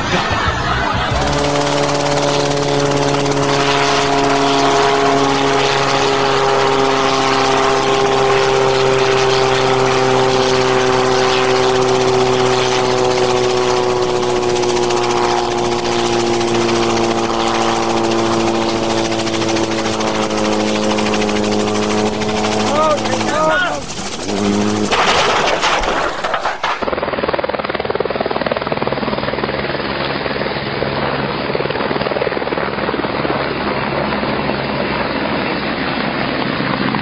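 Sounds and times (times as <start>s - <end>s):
helicopter engine and rotor drone: 0.0s - 37.0s.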